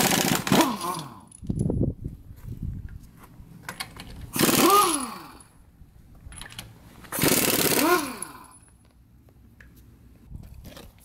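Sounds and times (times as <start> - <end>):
pneumatic impact wrench hammering: 0.0 - 1.4, 3.8 - 5.5, 7.0 - 8.7.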